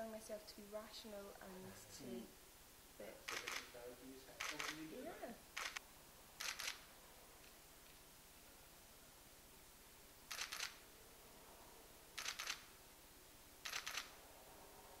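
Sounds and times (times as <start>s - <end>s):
camera shutter double click: 3.3s - 3.7s, 4.4s - 4.8s, 5.6s - 5.8s, 6.4s - 6.8s, 10.3s - 10.8s, 12.2s - 12.7s, 13.6s - 14.1s.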